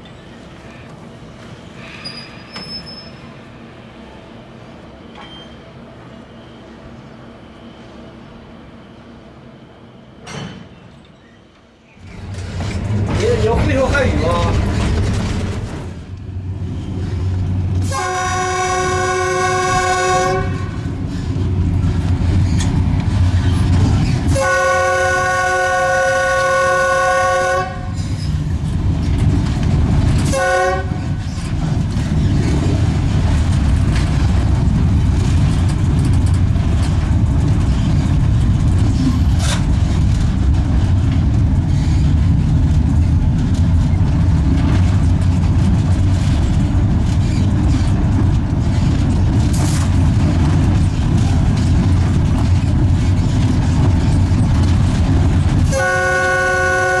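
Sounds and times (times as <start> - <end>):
locomotive rumbling on track: 0.0 - 57.0
locomotive horn blasts: 17.8 - 20.9, 24.3 - 28.0, 30.2 - 31.0, 55.7 - 57.0.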